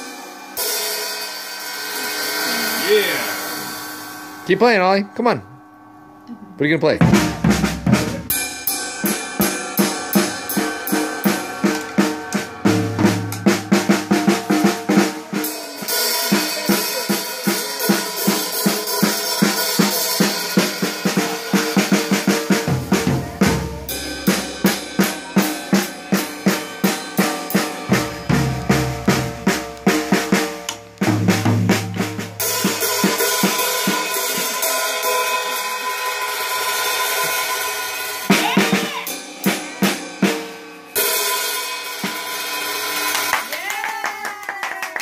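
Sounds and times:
cymbals washing: 0:00.0 - 0:43.6
drum stick hits: 0:09.8 - 0:15.2.

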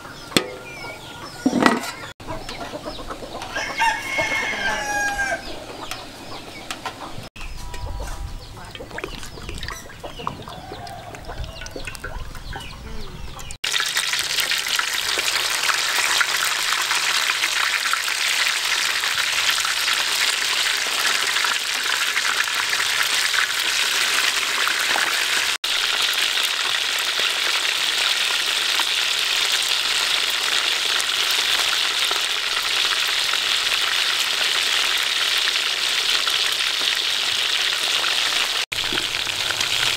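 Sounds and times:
chickens clucking: 0:00.0 - 0:13.6
food deep-frying in oil: 0:13.4 - 0:39.9.

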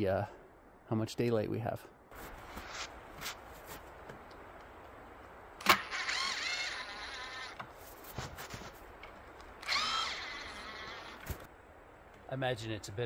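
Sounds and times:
power drill spinning: 0:05.6 - 0:07.6, 0:09.6 - 0:11.4.

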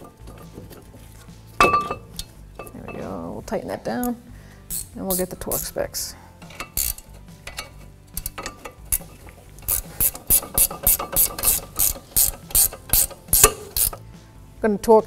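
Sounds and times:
hand ratchet clicking: 0:04.0 - 0:05.8, 0:06.4 - 0:14.0.

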